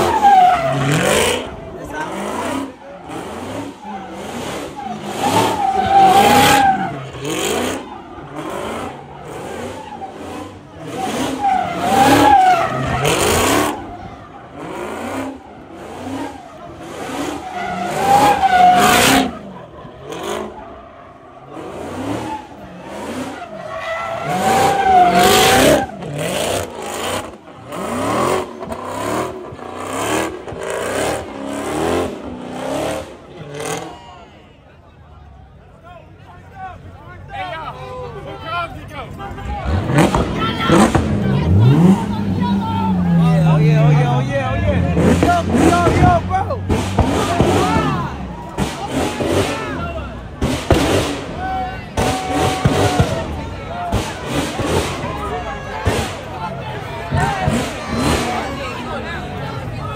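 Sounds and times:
car engine revving: 0.0s - 34.0s, 39.2s - 59.9s
tires squealing: 0.0s - 59.9s.

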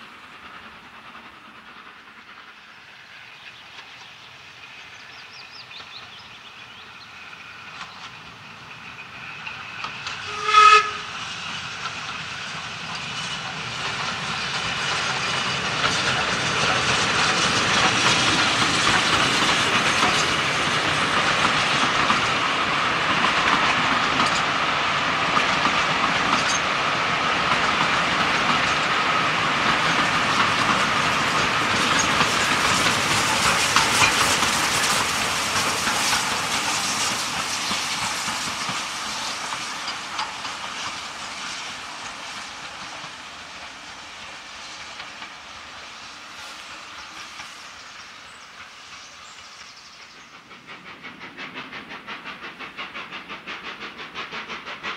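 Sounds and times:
steam train passing close: 0.0s - 54.9s
steam train running: 0.0s - 54.9s
steam locomotive whistle: 10.2s - 11.2s.

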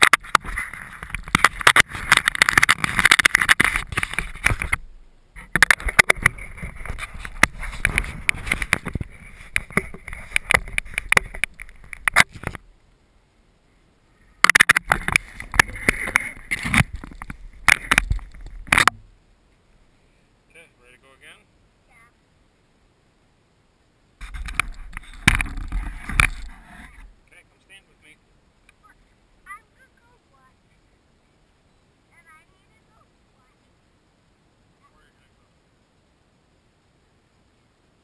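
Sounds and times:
hands rubbing and scraping camera: 0.0s - 4.8s, 5.4s - 12.6s, 14.4s - 19.0s, 24.2s - 27.1s.

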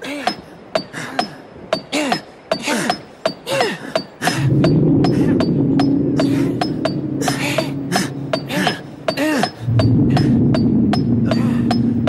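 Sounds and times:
loud low drone: 4.4s - 12.0s.

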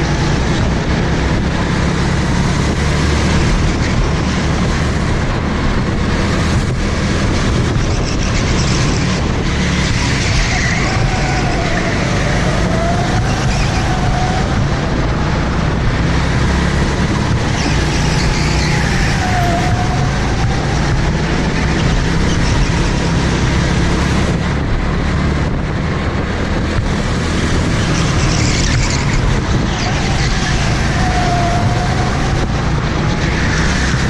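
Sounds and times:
go-kart engine running hard: 0.0s - 34.0s
tyres squealing: 9.9s - 14.6s.

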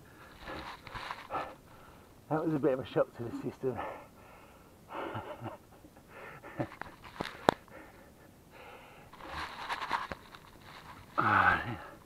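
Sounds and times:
man breathing heavily: 0.0s - 2.2s, 3.4s - 5.2s, 6.0s - 9.6s.

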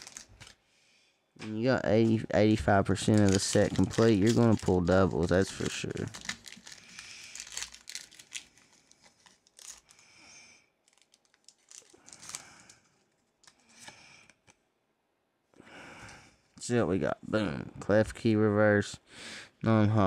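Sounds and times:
foil wrapper tearing and crinkling: 0.0s - 0.6s, 3.0s - 10.0s, 10.8s - 12.8s.

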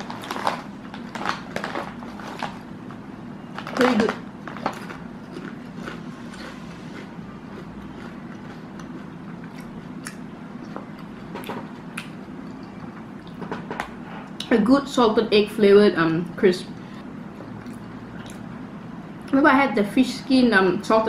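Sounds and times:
potato chips crunching: 0.0s - 2.7s, 3.5s - 13.6s
low steady hum: 0.0s - 21.0s.

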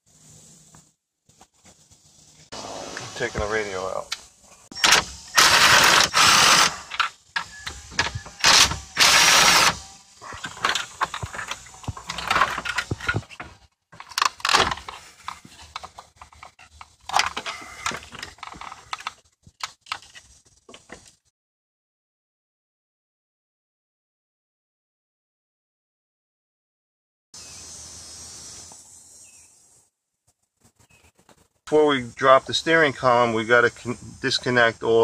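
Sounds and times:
cordless drill spinning out screws: 4.8s - 13.5s.

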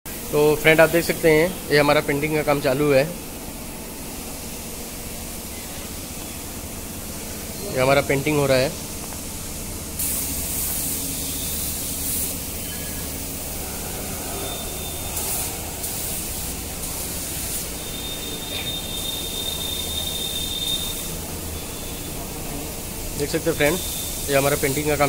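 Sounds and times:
steady low hum: 0.1s - 20.0s
paint spray gun hissing: 8.2s - 25.0s.

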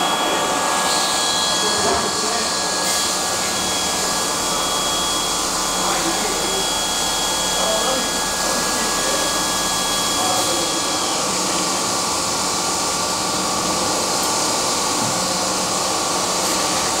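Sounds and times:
faint high whistling tones: 0.0s - 11.3s
machinery whirring hiss: 0.0s - 17.0s.

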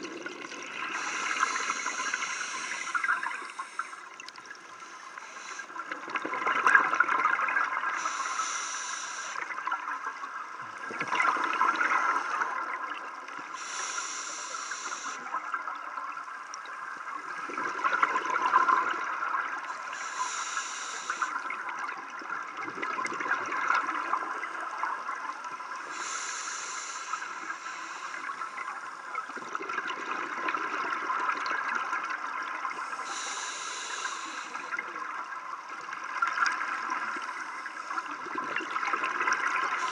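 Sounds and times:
regulator hissing inhale: 0.8s - 4.1s, 4.8s - 5.9s, 8.0s - 9.6s, 13.5s - 15.4s, 19.6s - 21.5s, 25.8s - 29.1s, 32.7s - 34.9s.

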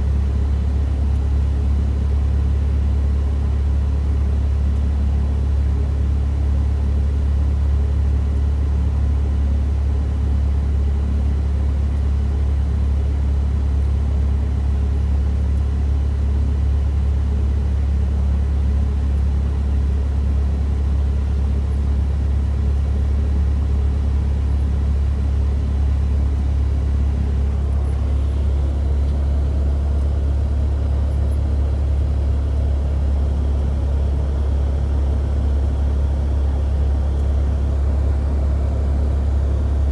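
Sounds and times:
propeller plane engine droning: 15.6s - 39.9s.

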